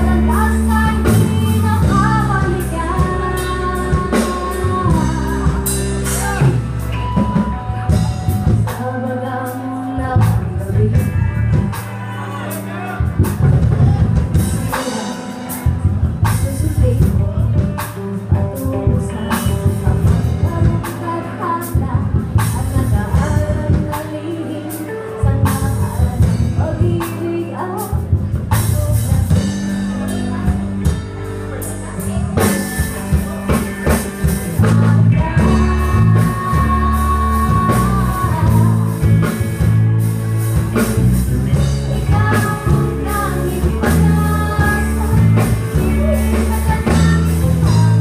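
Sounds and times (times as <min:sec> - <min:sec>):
woman singing: 0:00.0 - 0:12.5, 0:13.8 - 0:31.0, 0:31.6 - 0:39.7, 0:40.6 - 0:48.0
live rock band playing: 0:00.0 - 0:48.0.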